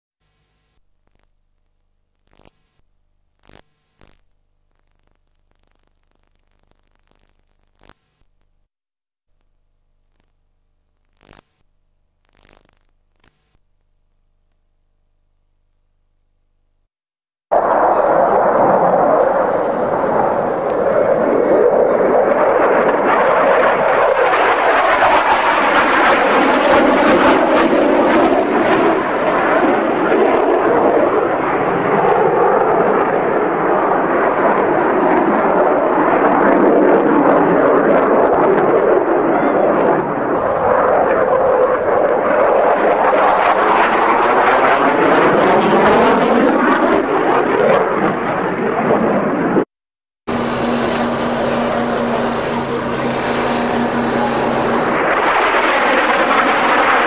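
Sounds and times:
jet fighter flying past: 0:17.5 - 0:49.7, 0:50.3 - 0:57.0.

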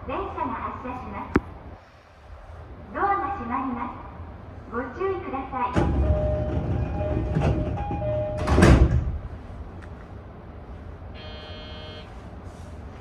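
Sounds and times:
train door-closing chime: 0:05.8 - 0:08.7
sliding doors banging shut: 0:05.8 - 0:09.2
short buzzer tone: 0:11.2 - 0:12.1.

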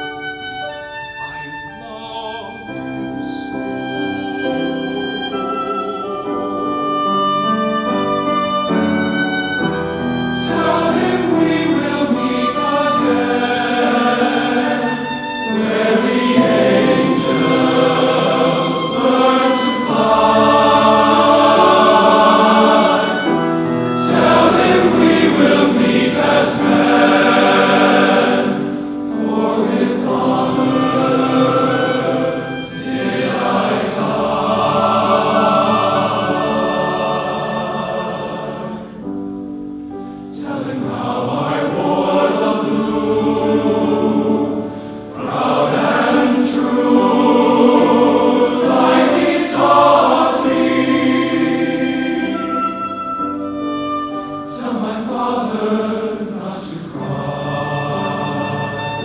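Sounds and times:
grand piano accompaniment: 0:00.0 - 0:59.0
men's chorus singing: 0:10.3 - 0:39.1, 0:40.3 - 0:52.9, 0:54.5 - 0:59.0.

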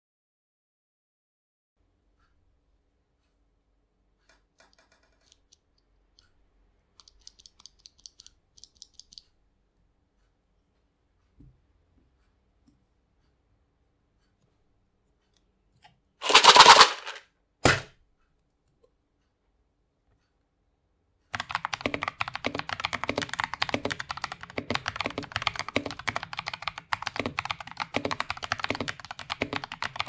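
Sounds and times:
loud rustling burst: 0:16.2 - 0:17.2.

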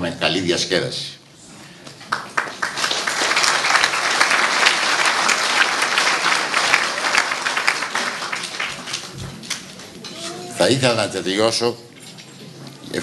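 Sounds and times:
audience applause: 0:02.1 - 0:10.0.

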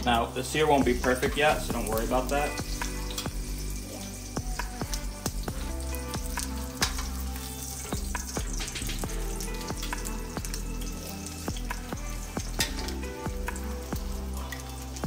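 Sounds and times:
oil popping and crackling: 0:00.0 - 0:15.0
steak sizzling in oil: 0:00.0 - 0:15.0.

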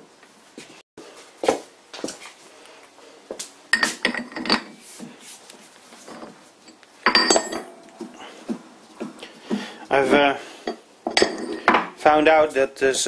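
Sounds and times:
steel clinks and rattles: 0:06.1 - 0:07.9.

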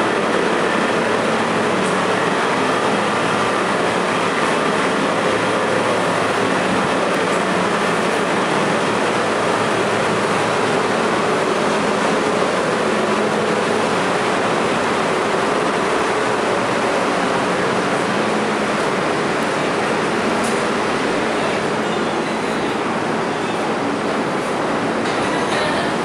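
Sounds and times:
subway car equipment hum: 0:00.0 - 0:26.0.

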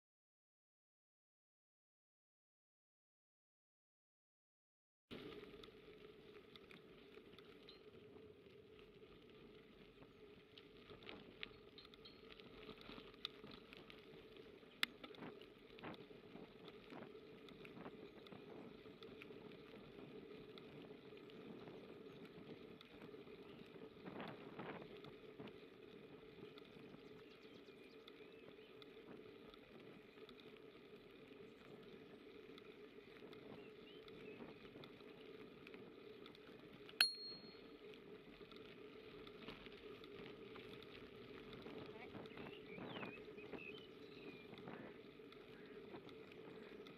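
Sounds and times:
bicycle rolling on gravel: 0:05.1 - 0:46.9
bicycle clicks and rattles: 0:05.2 - 0:46.9
bicycle bell ding: 0:37.0 - 0:37.6.

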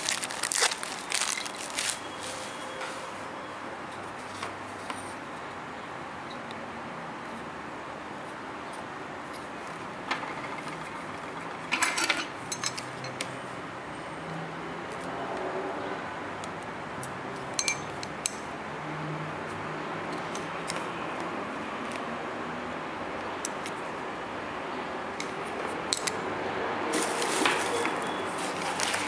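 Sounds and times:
rustling and crackling: 0:00.0 - 0:03.1, 0:26.9 - 0:29.0.

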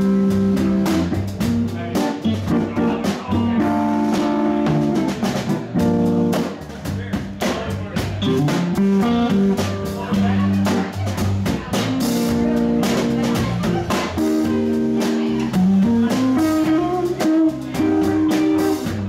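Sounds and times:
drum kit steady beat: 0:00.0 - 0:19.0
electric guitar notes: 0:14.2 - 0:19.0.

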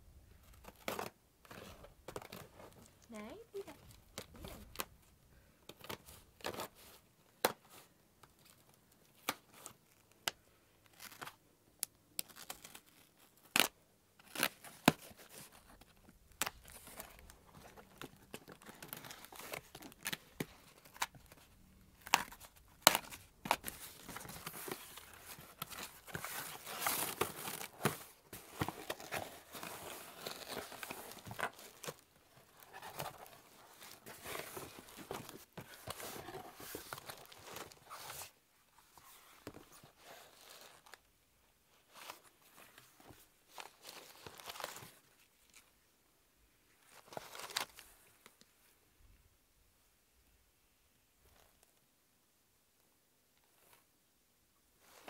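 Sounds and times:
packing paper rustling: 0:14.2 - 0:38.3.

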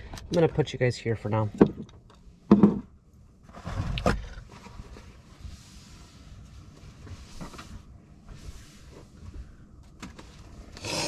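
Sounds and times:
rumbling knock and scrape: 0:01.5 - 0:05.1.

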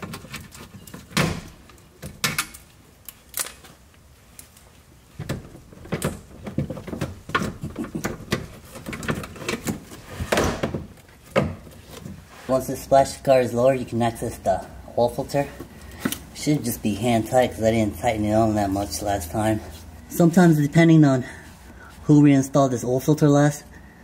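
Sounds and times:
plastic clicks knocks and rattles: 0:05.2 - 0:09.9.

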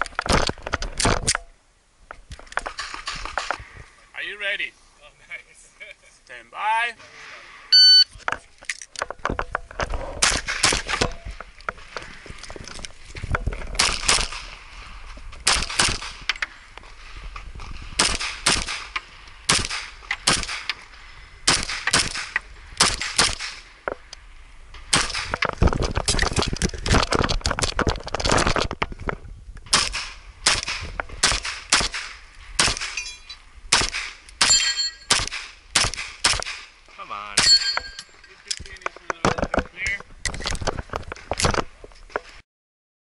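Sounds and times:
pistol shots: 0:15.4 - 0:16.2, 0:18.0 - 0:18.9, 0:19.5 - 0:20.7, 0:21.5 - 0:23.6, 0:24.9 - 0:25.3, 0:29.7 - 0:33.0, 0:33.7 - 0:36.7.

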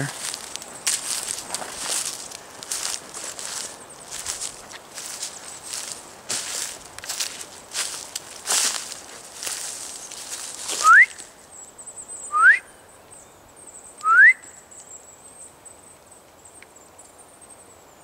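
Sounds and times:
upward sliding whistles: 0:10.8 - 0:11.2, 0:12.3 - 0:12.7, 0:14.0 - 0:14.5.

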